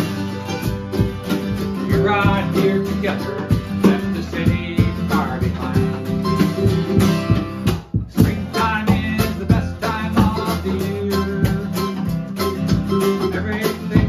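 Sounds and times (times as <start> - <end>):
picked mandolin: 0.0 - 14.0
strummed acoustic guitar: 0.0 - 14.0
drums with cymbal: 3.5 - 10.6.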